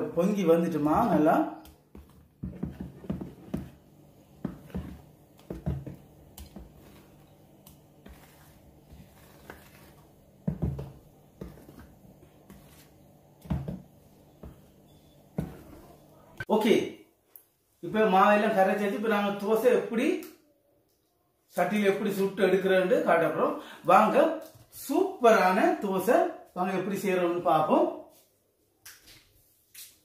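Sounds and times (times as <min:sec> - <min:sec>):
ladle scraping plastic bowl: 0:01.9 - 0:03.8, 0:04.4 - 0:13.7.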